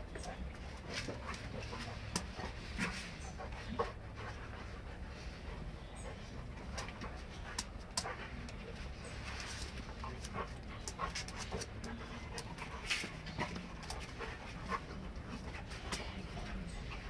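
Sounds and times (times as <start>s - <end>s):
dogs panting: 0.0s - 17.0s
dogs scuffling: 6.1s - 17.0s.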